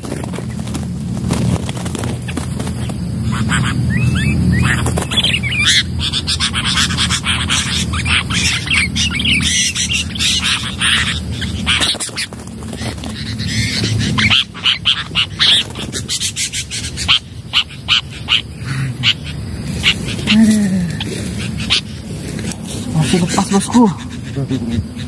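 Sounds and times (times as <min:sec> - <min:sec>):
bird wings flapping: 0:00.0 - 0:05.6, 0:10.5 - 0:14.3, 0:14.9 - 0:16.2
bulbuls calling harshly: 0:01.8 - 0:25.0.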